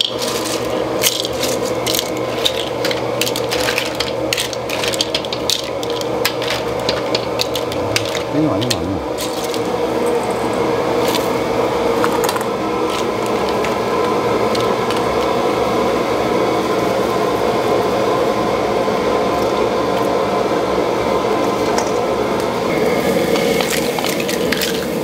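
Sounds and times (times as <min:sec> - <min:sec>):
shellfish and bowls clicking: 0:00.0 - 0:09.6
burners and ventilation drone: 0:00.0 - 0:25.0.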